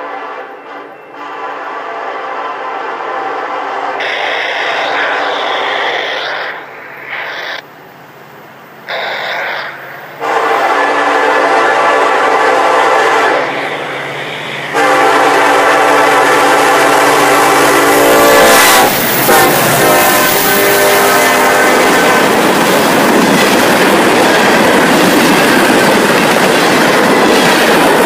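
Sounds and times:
locomotive horn blasts: 0.0 - 4.1, 10.2 - 13.5, 14.7 - 22.4.

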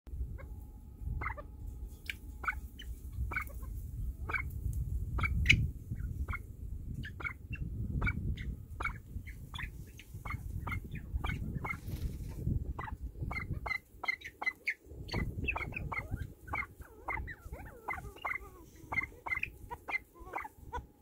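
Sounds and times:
low rumble: 0.1 - 13.7
pheasants calling: 0.2 - 21.0.

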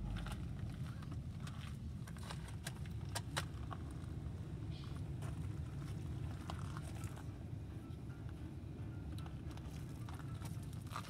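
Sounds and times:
low rumble: 0.0 - 2.4.

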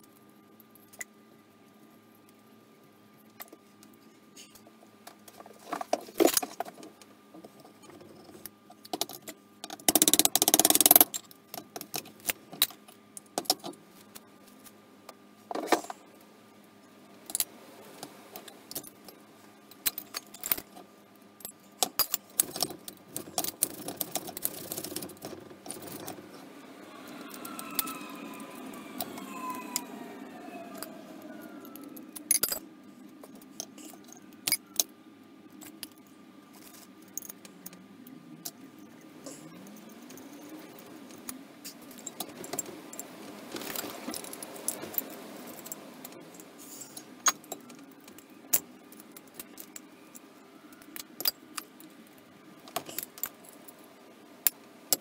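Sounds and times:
metal parts clinking: 31.7 - 32.6.

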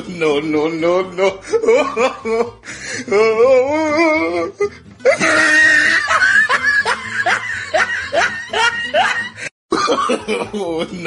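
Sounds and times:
high rising laugh-like sounds: 5.0 - 9.9.

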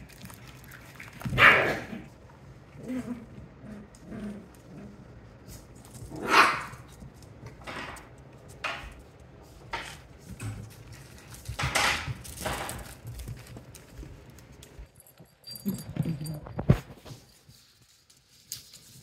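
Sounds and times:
puppy scuffling on wooden floor: 3.0 - 14.9.

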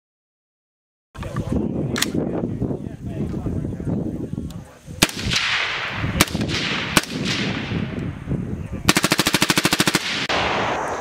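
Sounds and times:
suppressed rifle single shots: 5.0 - 7.8
full-auto gunfire: 5.0 - 7.9, 8.9 - 11.0.

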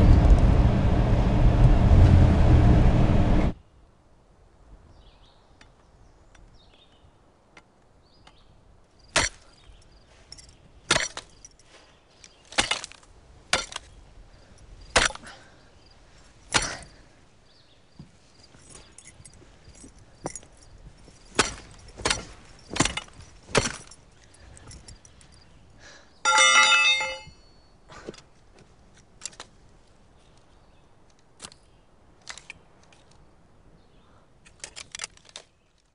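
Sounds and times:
hand tool hammering metal: 21.4 - 23.9, 26.3 - 27.4.

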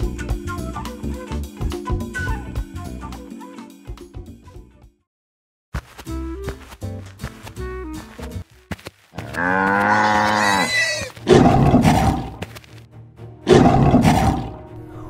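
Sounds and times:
background music: 0.0 - 5.0, 6.1 - 8.7, 9.3 - 15.0
drawn-out pitched animal call: 9.2 - 11.2
cartoon lion roaring: 9.2 - 12.4, 13.5 - 14.6.

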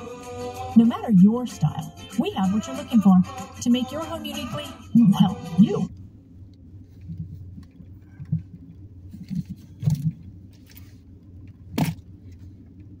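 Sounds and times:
soft low thumps: 7.0 - 10.2.

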